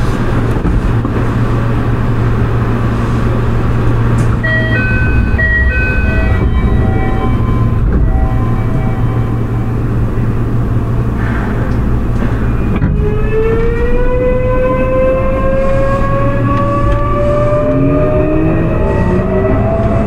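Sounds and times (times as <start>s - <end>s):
low rumble: 0.0s - 20.0s
train motor whine rising: 4.1s - 10.0s
lower rising tone: 4.1s - 10.6s, 13.0s - 20.0s.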